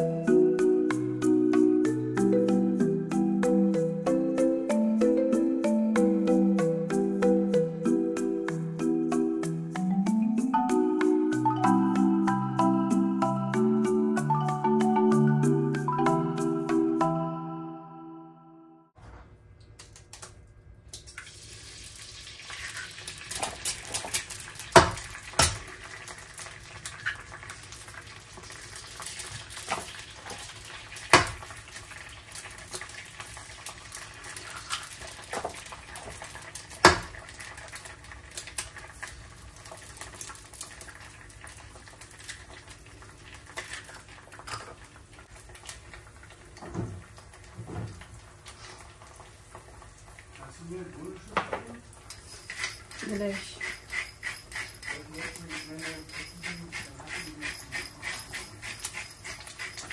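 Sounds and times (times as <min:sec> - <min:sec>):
eggs sizzling in pan: 0:21.0 - 0:59.9
eggs cracking on pan rim: 0:22.5 - 0:42.7.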